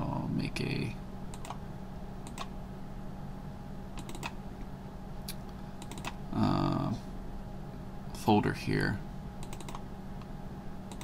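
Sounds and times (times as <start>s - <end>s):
low electrical hum: 0.0s - 11.0s
computer mouse clicks: 1.3s - 1.6s, 2.2s - 2.5s, 4.0s - 4.4s, 5.8s - 6.2s, 9.4s - 9.8s.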